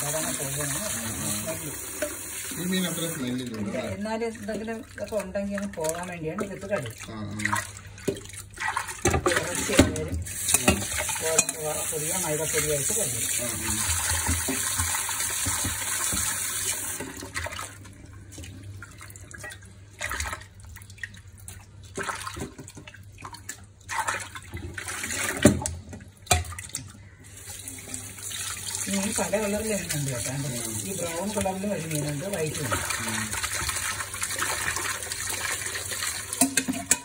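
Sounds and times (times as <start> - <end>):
tap water running into bowl: 0.0 - 37.0
water sloshing and pouring: 0.0 - 37.0
steel bowl knocking on sink: 36.4 - 37.0.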